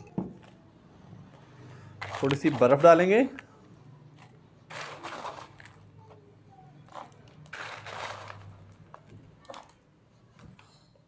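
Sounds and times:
ice cubes crunching and rattling: 2.0s - 3.4s, 4.7s - 5.9s, 6.9s - 9.8s.

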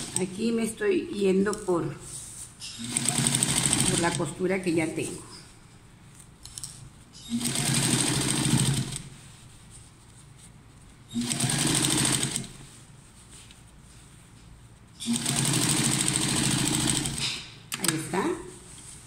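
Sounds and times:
electric sewing machine stitching: 0.0s - 0.2s, 2.8s - 4.2s, 7.3s - 9.0s, 11.1s - 12.5s, 15.0s - 17.4s.

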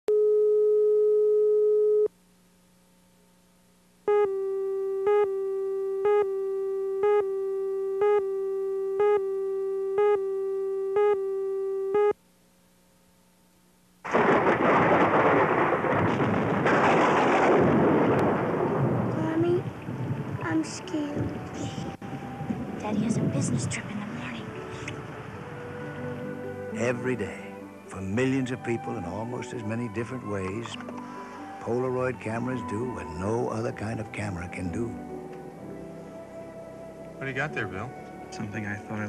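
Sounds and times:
steady line-up tone: 3.8s - 12.2s
countdown beeps: 4.1s - 12.2s.

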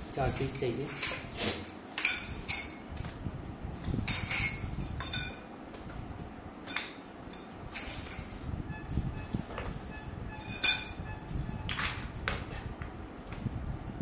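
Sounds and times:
iron rods clinking: 4.1s - 5.5s, 9.9s - 12.0s.

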